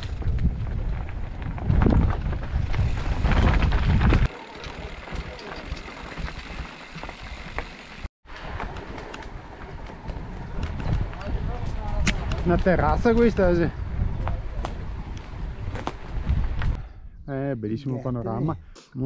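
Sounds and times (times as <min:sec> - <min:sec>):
wind buffeting microphone: 0:00.0 - 0:07.4, 0:08.4 - 0:17.5
bike clicks and rattles: 0:00.0 - 0:13.4.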